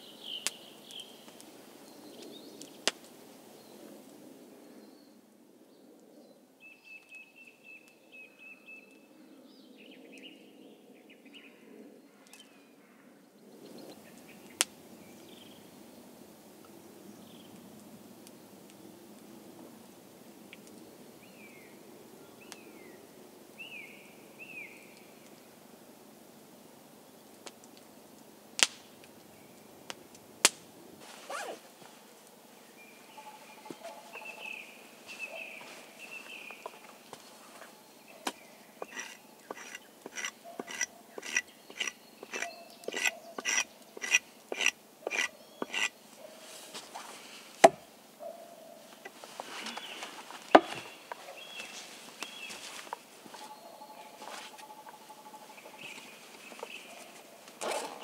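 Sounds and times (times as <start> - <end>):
sharp cracks: 28.6 - 28.9, 30.4 - 30.7
bird calls: 32.7 - 46.5, 47.1 - 58.0.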